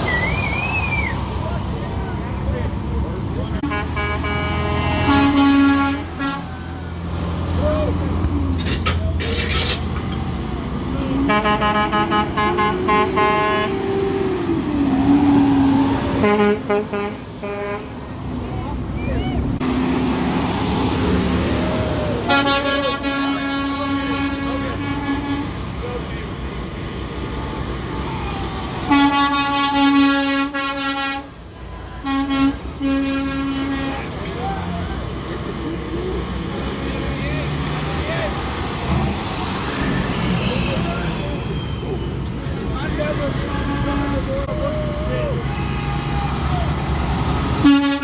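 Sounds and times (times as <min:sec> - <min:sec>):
diesel trucks rumbling past: 0:00.0 - 0:48.0
air horn toots: 0:03.6 - 0:06.5, 0:11.2 - 0:13.8, 0:15.1 - 0:17.9, 0:22.2 - 0:25.6, 0:28.9 - 0:31.3, 0:32.0 - 0:34.1, 0:47.6 - 0:48.0.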